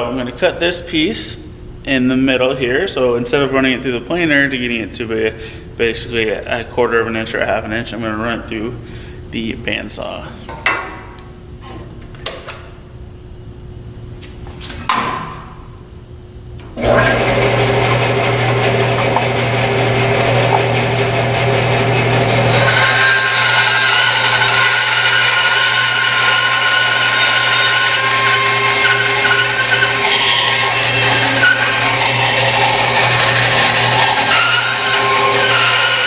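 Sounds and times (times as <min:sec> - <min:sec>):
bandsaw motor humming: 0:16.7 - 0:36.0
bandsaw blade cutting wood: 0:16.8 - 0:36.0.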